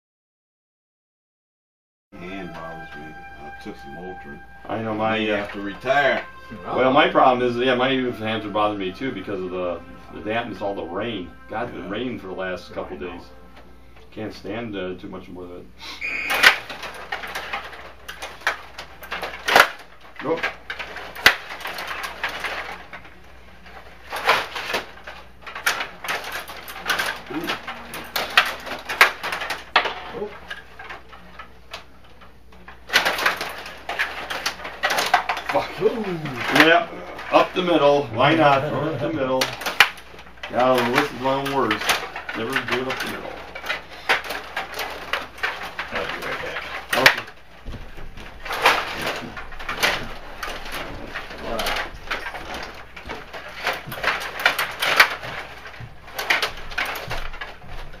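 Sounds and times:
plastic rods sliding and twisting: 0:16.0 - 0:58.0
plastic players and puck knocking: 0:16.1 - 0:58.0.

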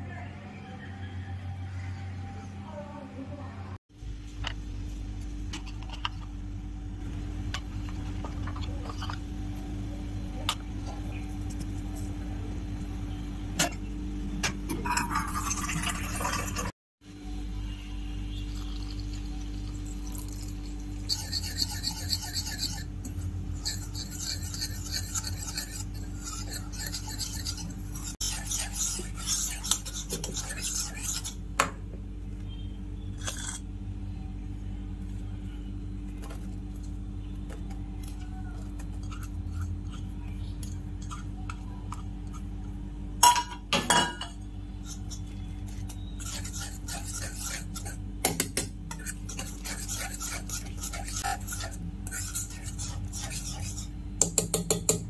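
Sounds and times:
steady low hum: 0:00.0 - 0:55.0
whisk scraping batter in metal pan: 0:20.0 - 0:31.4, 0:44.7 - 0:54.9.

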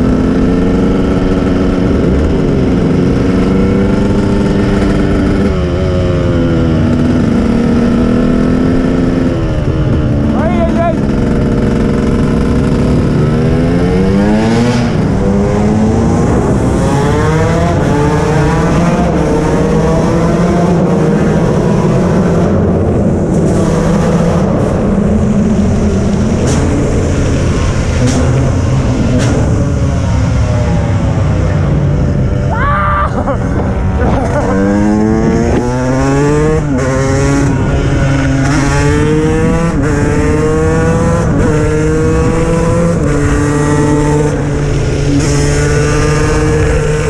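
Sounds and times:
motorcycle engine accelerating: 0:00.0 - 0:47.0
wind rush: 0:21.3 - 0:47.0.

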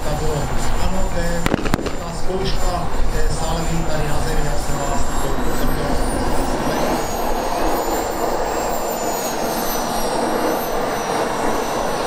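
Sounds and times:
model jet turbine whine: 0:00.0 - 0:12.0.

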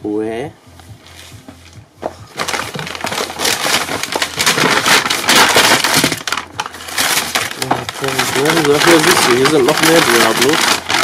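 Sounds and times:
paper being crumpled: 0:02.3 - 0:11.0.

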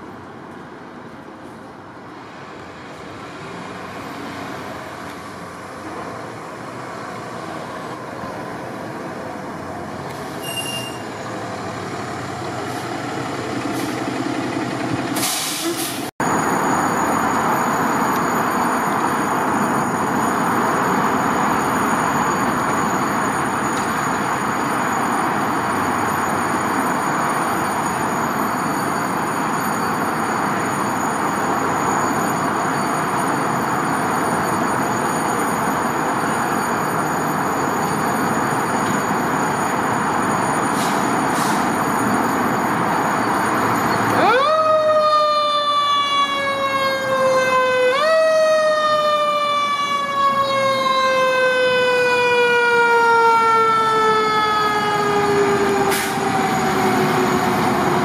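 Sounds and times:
engine and traffic noise: 0:00.0 - 0:58.0
mechanical siren wailing: 0:41.9 - 0:58.0.

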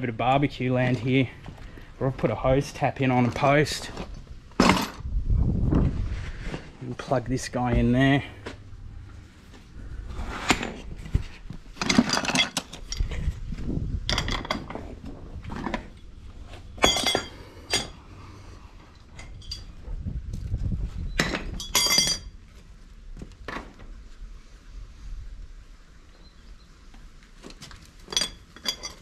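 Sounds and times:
metal tools clanking on tap: 0:16.8 - 0:17.9, 0:21.2 - 0:22.3, 0:28.1 - 0:29.0.

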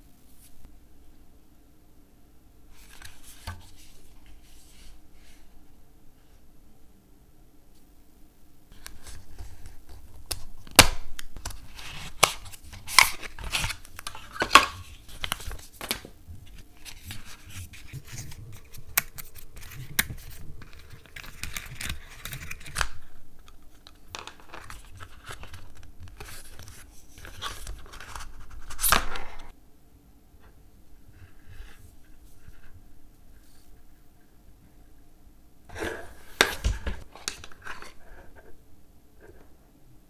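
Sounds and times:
packaging rustling: 0:11.4 - 0:29.5.

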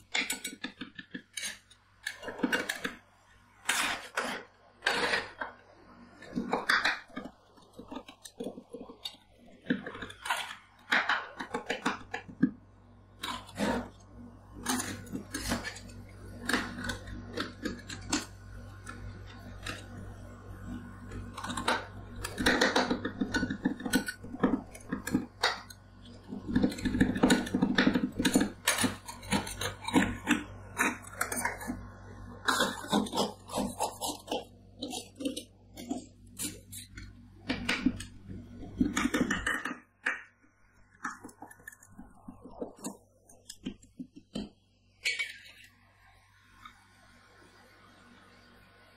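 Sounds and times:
spatulas scraping metal plate: 0:03.6 - 0:12.3, 0:14.6 - 0:39.7.

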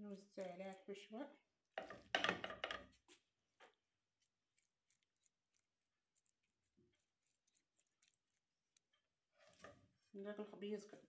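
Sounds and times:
soft wet squishes: 0:02.9 - 0:10.2
spatula scraping rustle: 0:02.9 - 0:10.2.

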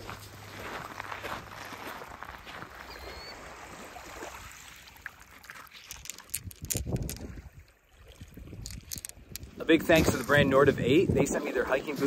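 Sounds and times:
soft footsteps on pebbly sand: 0:00.0 - 0:04.1
water splashing and sloshing: 0:00.0 - 0:10.7
stones clicking together: 0:05.4 - 0:07.4, 0:08.6 - 0:09.6.

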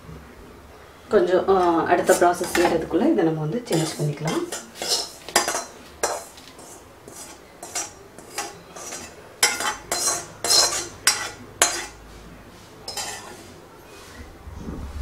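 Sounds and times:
metal scraping and clinking: 0:03.7 - 0:12.0.

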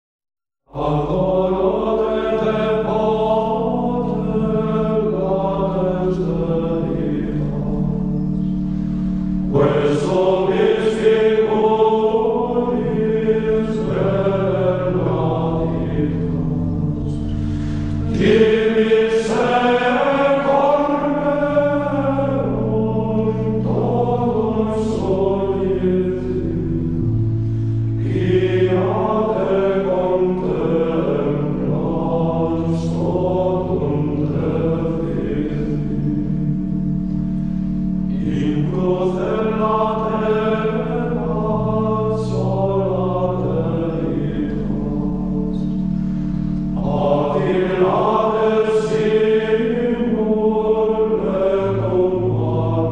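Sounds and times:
choir chanting: 0:00.7 - 0:08.5, 0:09.5 - 0:27.2, 0:27.8 - 0:36.6, 0:38.1 - 0:45.9, 0:46.6 - 0:52.9
sustained low notes: 0:00.8 - 0:52.9.

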